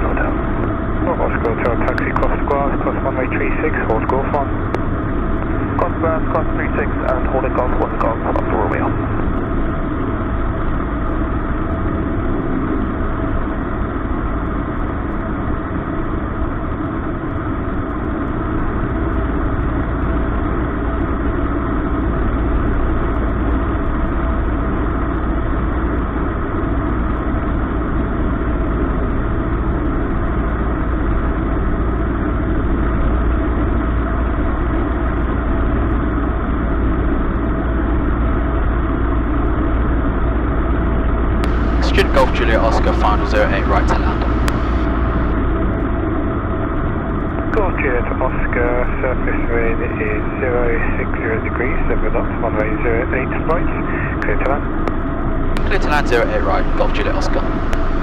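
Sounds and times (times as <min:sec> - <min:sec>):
airplane engine droning in cabin: 0:00.0 - 0:58.0.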